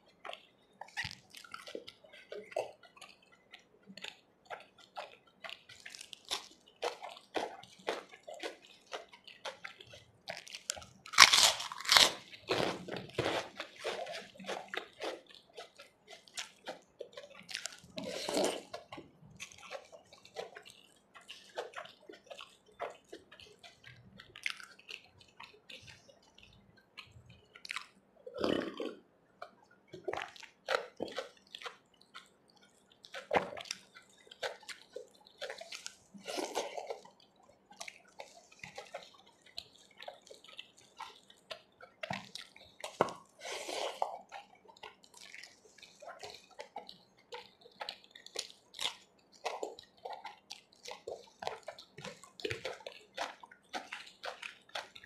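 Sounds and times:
wet chewing and mouth smacks: 0:00.0 - 0:55.0
fingers mixing curry on plate: 0:12.2 - 0:55.0.

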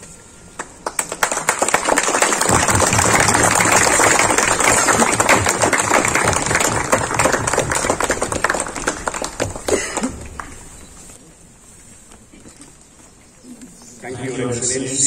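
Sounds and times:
small group clapping: 0:00.5 - 0:11.1.

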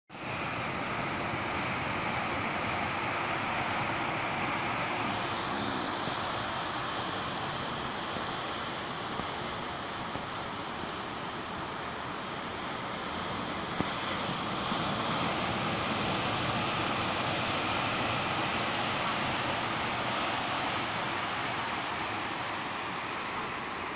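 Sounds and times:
surf washing over rocks: 0:00.2 - 0:23.9.

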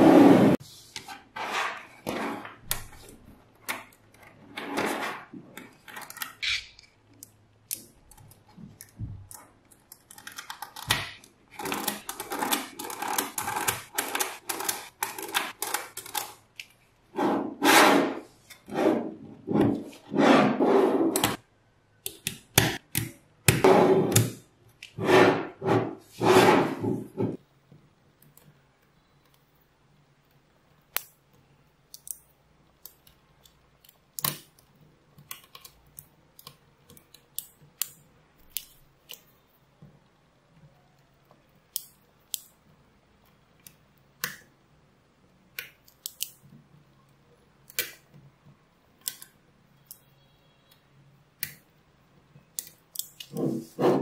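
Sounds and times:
magnetic balls snapping clicks: 0:45.5 - 0:46.4.

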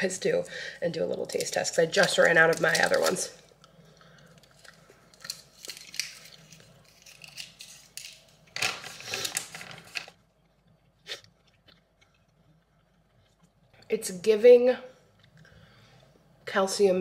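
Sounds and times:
wrapper crinkling and tearing: 0:01.3 - 0:03.4, 0:04.3 - 0:10.2
chewing: 0:10.3 - 0:13.9, 0:15.0 - 0:15.7.

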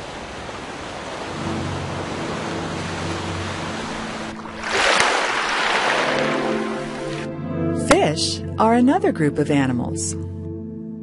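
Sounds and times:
rush of water: 0:00.0 - 0:07.3
low held musical chord: 0:01.3 - 0:04.6, 0:05.9 - 0:10.9.

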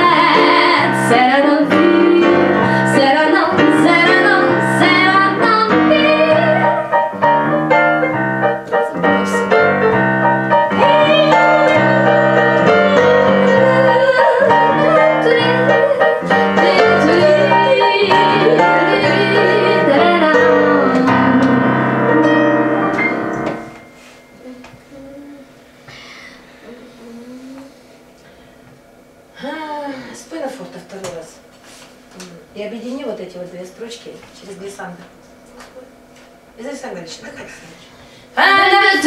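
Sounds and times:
woman singing jazz: 0:00.0 - 0:23.7, 0:38.2 - 0:39.0
digital piano chords: 0:00.0 - 0:25.4.

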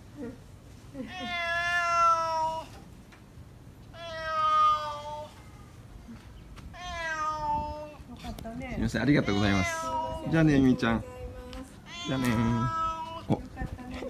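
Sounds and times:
cat meowing: 0:01.1 - 0:02.8, 0:03.9 - 0:05.4, 0:06.7 - 0:08.0, 0:09.0 - 0:11.2, 0:11.8 - 0:13.4.

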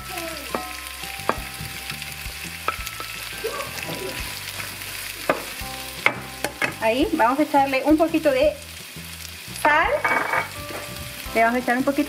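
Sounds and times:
onions sizzling in oil: 0:00.0 - 0:12.0
wooden spatula knocking pan: 0:00.5 - 0:02.0, 0:04.4 - 0:06.9, 0:09.6 - 0:11.0.

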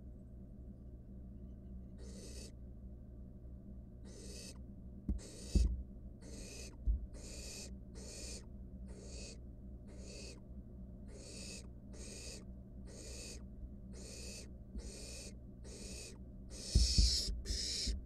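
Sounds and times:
owl chick hissing: 0:02.0 - 0:02.6, 0:04.0 - 0:04.6, 0:05.2 - 0:10.4, 0:11.1 - 0:18.0
knock: 0:05.1 - 0:05.8, 0:16.8 - 0:17.2.

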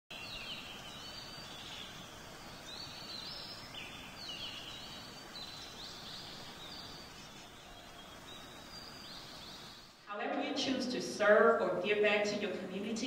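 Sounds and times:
birds chirping: 0:00.1 - 0:10.0
outdoor background hiss: 0:00.1 - 0:13.0.

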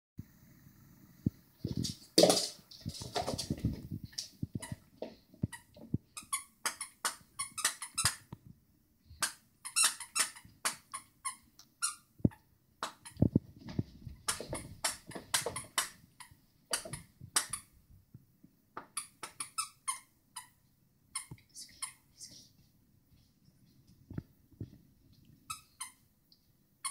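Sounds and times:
squeaky dog toys squeaking: 0:05.6 - 0:08.3, 0:09.2 - 0:12.1, 0:19.0 - 0:22.0, 0:25.5 - 0:26.0.

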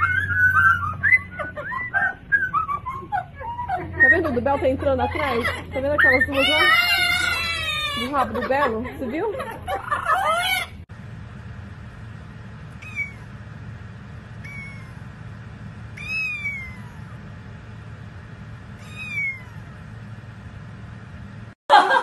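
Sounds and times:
steady low hum: 0:00.0 - 0:21.6
kitten mewing: 0:05.2 - 0:08.1, 0:12.8 - 0:13.4, 0:14.4 - 0:15.1, 0:15.9 - 0:17.2, 0:18.8 - 0:19.8.

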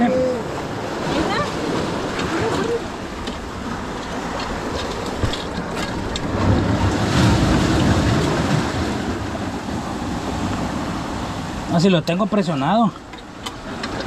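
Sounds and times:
surf washing among rocks: 0:00.0 - 0:14.0.

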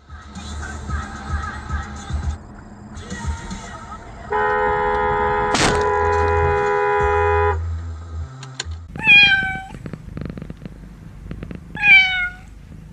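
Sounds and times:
car horn blast: 0:04.3 - 0:07.8
cat meowing: 0:08.9 - 0:09.8, 0:11.7 - 0:12.6.

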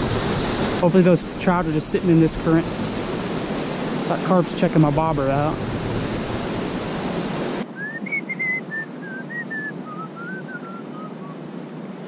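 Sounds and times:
river water rushing: 0:00.0 - 0:12.0
bird whistling notes: 0:07.8 - 0:11.4.

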